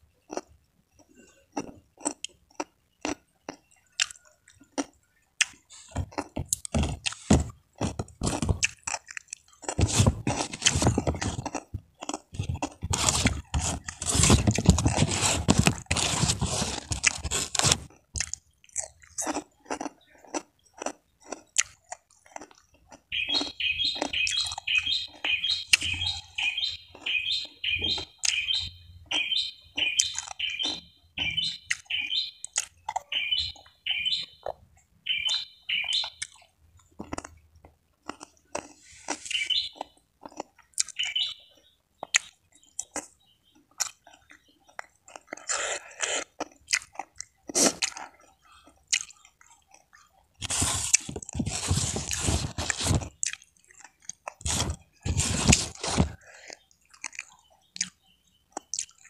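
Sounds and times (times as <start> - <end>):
chewing crisp food: 0.0 - 59.0
bird chirping: 22.4 - 36.5, 38.9 - 47.0, 54.5 - 59.0.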